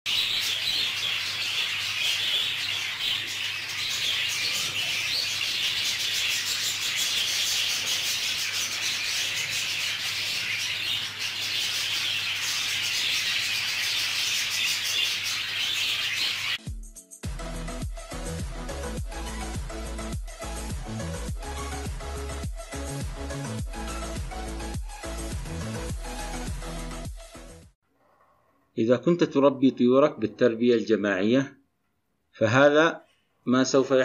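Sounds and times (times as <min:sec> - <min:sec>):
budgerigars chattering: 0:00.1 - 0:16.6.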